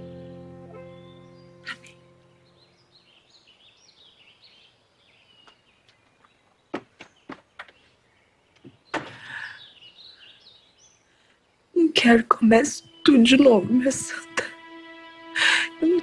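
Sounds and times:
songbird chirping: 0.0 - 16.0
sharp footsteps: 6.2 - 7.9.

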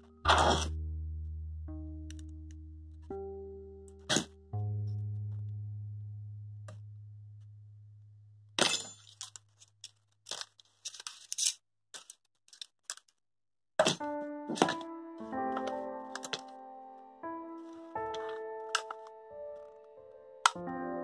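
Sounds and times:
background music held notes: 0.0 - 7.6, 14.0 - 21.0.

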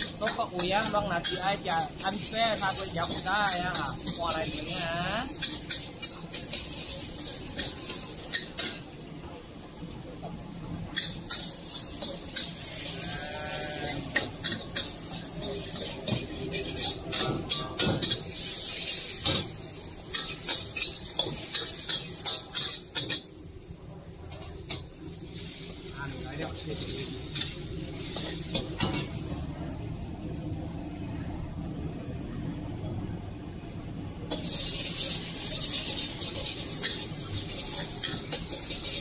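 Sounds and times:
food sizzling: 0.0 - 32.5, 34.2 - 39.0
metal spatula scraping a wok: 11.0 - 23.3, 34.3 - 39.0.

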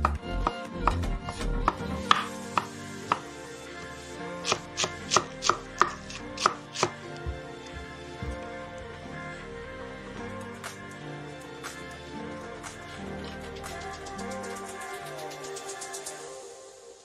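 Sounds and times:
knife chopping on wooden board: 0.0 - 3.2, 4.4 - 7.0.

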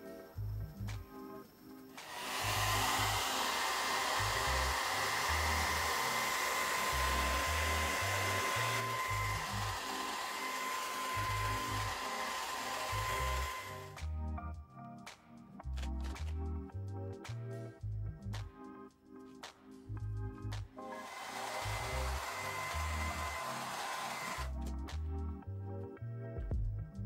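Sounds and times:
hair dryer blowing: 2.0 - 14.0, 20.9 - 24.6.

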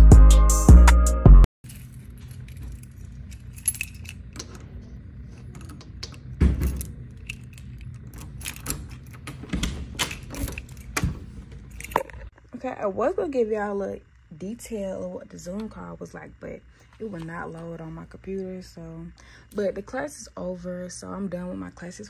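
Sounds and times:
keys jangling: 1.6 - 4.6, 5.5 - 11.1, 11.7 - 12.1
key clicking in lock: 5.6 - 11.1.

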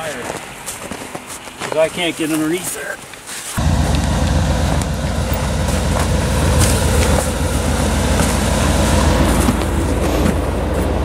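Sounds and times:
tractor engine running: 3.6 - 11.0.

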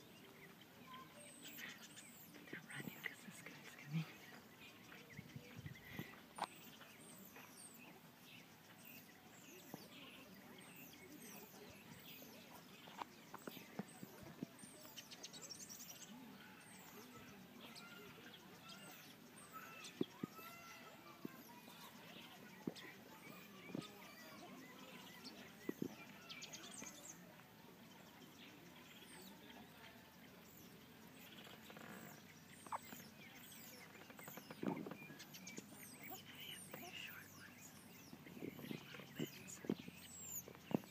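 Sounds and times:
mongoose squeaks and chirps: 31.8 - 36.9.

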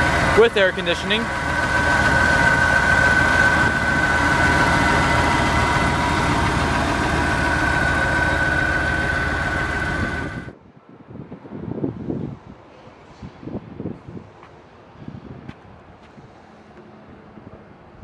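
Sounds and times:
car engine idling: 0.0 - 10.5
high-pitched whine: 0.0 - 10.5.

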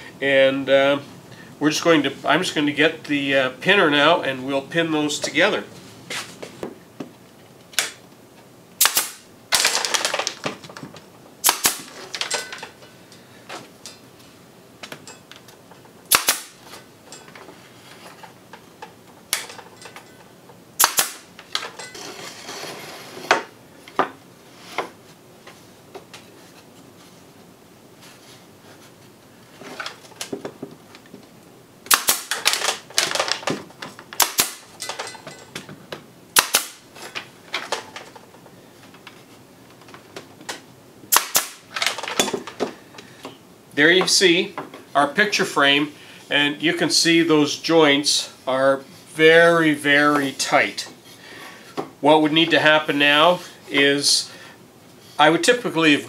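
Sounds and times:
pneumatic nailer popping: 8.8 - 10.3, 11.4 - 12.3, 16.1 - 16.7, 20.8 - 21.7, 31.8 - 33.6, 34.2 - 34.8, 36.3 - 36.8, 41.1 - 42.3.

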